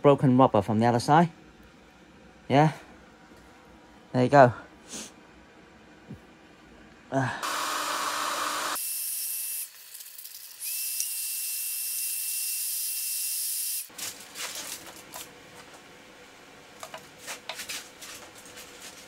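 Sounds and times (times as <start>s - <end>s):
heat gun blowing: 7.4s - 13.9s
aluminium foil crinkling: 13.9s - 15.3s, 17.1s - 19.0s.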